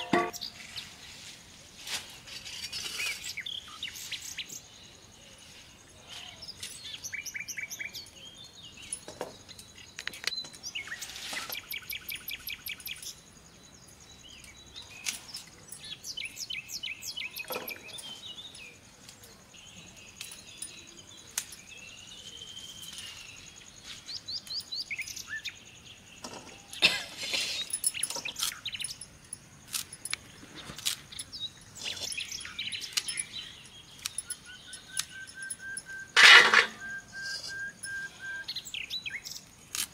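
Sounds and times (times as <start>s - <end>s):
birds chirping and trilling: 0.0s - 1.3s, 2.2s - 39.8s
bird whistle rising and falling: 36.8s - 38.6s.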